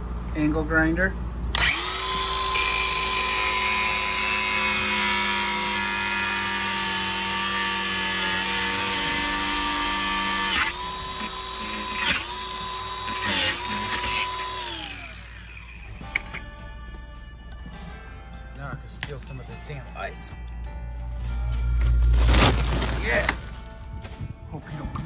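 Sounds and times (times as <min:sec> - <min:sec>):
angle grinder grinding metal: 0:01.6 - 0:16.4.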